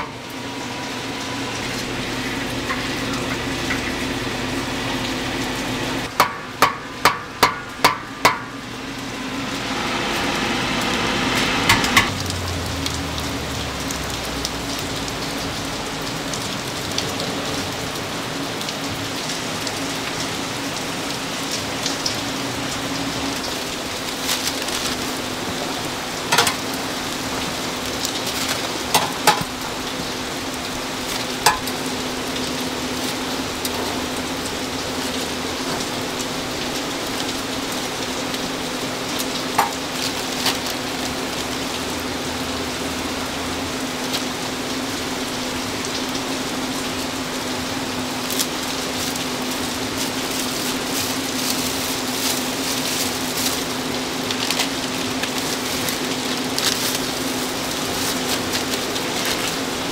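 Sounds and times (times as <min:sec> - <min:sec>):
constant low hum: 0:00.0 - 0:59.9
food sizzling in hot oil: 0:08.2 - 0:16.7, 0:19.8 - 0:44.6, 0:45.5 - 0:59.9.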